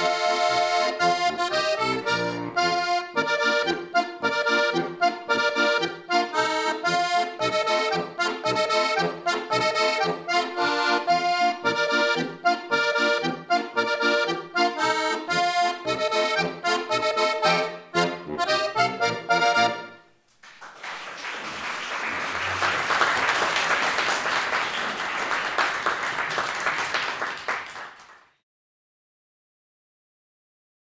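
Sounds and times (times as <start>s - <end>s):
button accordion playing lively tune: 0.0s - 20.0s
guitar accompaniment: 0.0s - 20.0s
applause: 20.3s - 28.4s.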